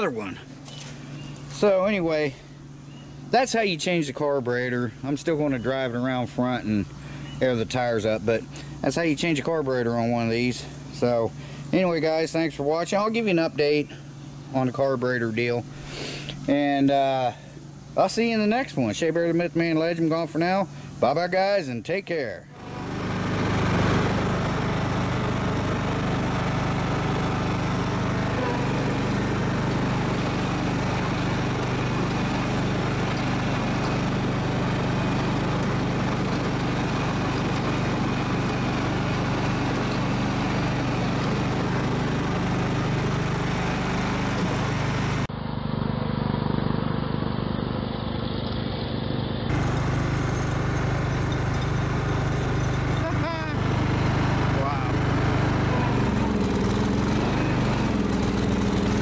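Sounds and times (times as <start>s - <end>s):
riding mower engine running: 0.0s - 59.0s.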